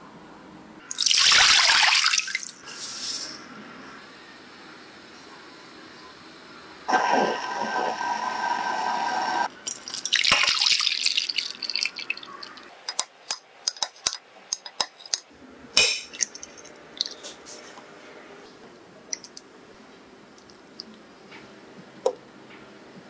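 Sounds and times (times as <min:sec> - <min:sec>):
liquid pouring into glass dish: 0:09.7 - 0:12.7.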